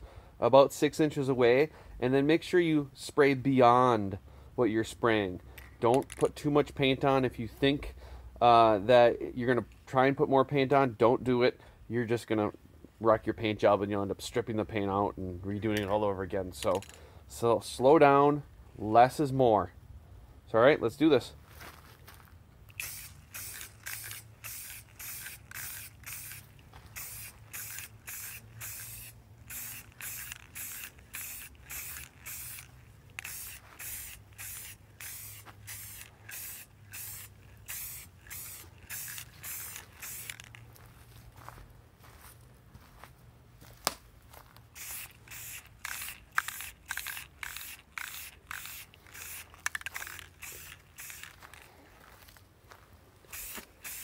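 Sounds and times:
aerosol spray can hissing: 22.7s - 40.6s, 44.8s - 51.4s, 53.3s - 54.0s.

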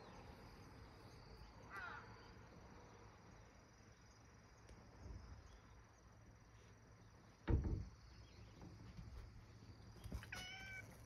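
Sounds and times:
insects chirring: 0.0s - 11.0s.

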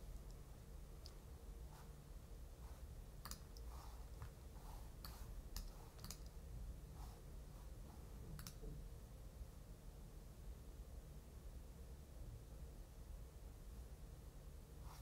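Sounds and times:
low steady hum: 0.0s - 15.0s
faint computer clicks: 8.4s - 8.7s.

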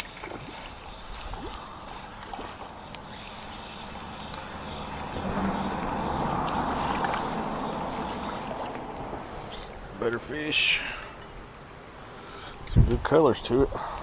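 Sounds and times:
fish splashing in water: 0.0s - 9.8s.

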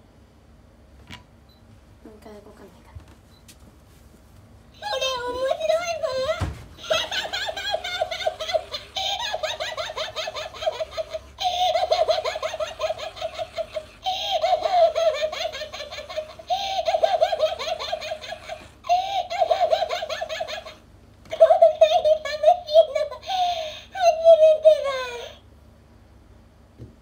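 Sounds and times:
toy high-pitched recorded laugh: 6.8s - 25.4s.

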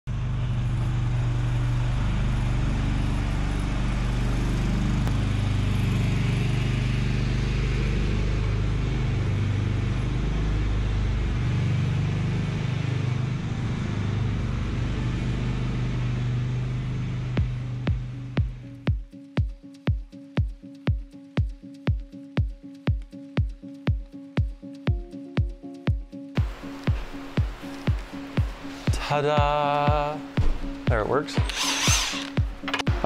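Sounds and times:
riding lawn mower engine running: 0.1s - 18.8s, 30.6s - 33.0s.

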